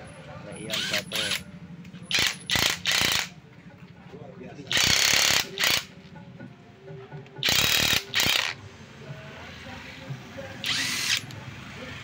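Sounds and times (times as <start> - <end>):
ratchet-like mechanical rattling: 2.1 - 3.4, 4.7 - 5.9, 7.4 - 8.6, 10.6 - 11.3.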